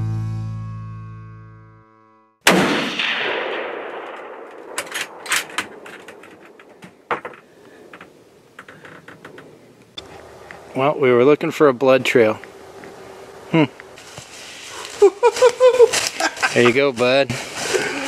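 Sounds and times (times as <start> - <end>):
gunshot echoing: 2.4 - 6.6.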